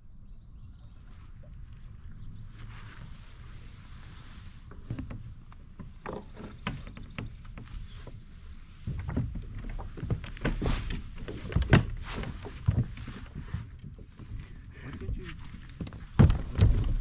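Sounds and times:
plastic kayak knocks and scrapes: 4.7 - 14.4, 15.2 - 17.0.

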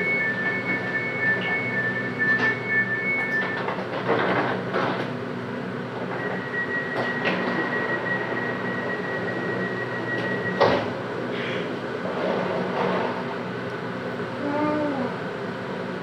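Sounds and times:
high-pitched whine: 0.0 - 3.8, 6.0 - 11.1
tram running hum: 0.0 - 16.0.

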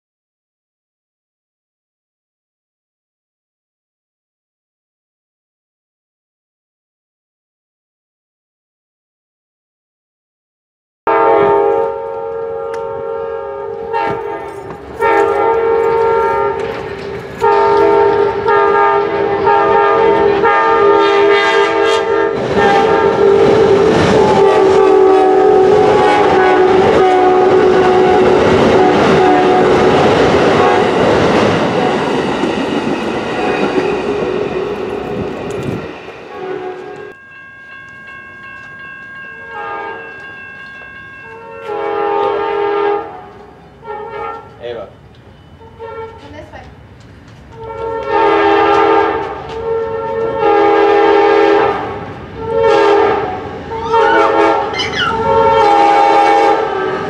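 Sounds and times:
train horn blasts: 11.1 - 32.6, 33.3 - 37.2, 39.4 - 40.2, 41.3 - 46.5, 47.5 - 57.0
train wheels clattering and rumbling: 13.8 - 19.5, 22.4 - 24.9, 25.6 - 37.2, 46.1 - 50.4.

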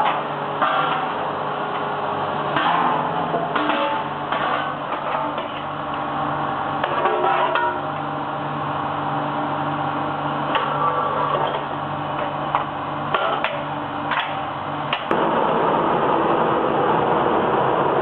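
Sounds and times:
steady mechanical hum: 0.0 - 18.0
knocks and clanks: 2.5 - 5.7
loud steady rushing noise: 14.9 - 18.0.

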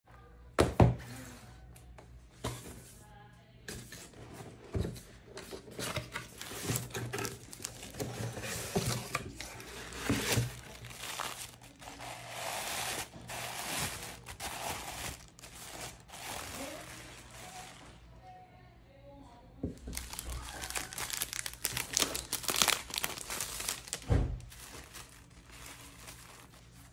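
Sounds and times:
paper rustling and crinkling: 4.2 - 18.2, 19.8 - 26.9.

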